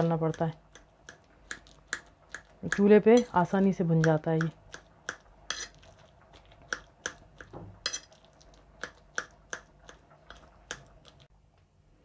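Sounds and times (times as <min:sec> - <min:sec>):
utensil tapping a dish: 0:00.0 - 0:05.8, 0:06.6 - 0:08.1.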